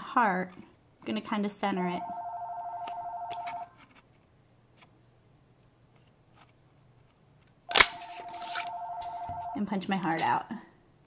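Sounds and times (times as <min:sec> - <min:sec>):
electronic telephone ringer warbling: 0:02.0 - 0:03.7, 0:08.0 - 0:09.7.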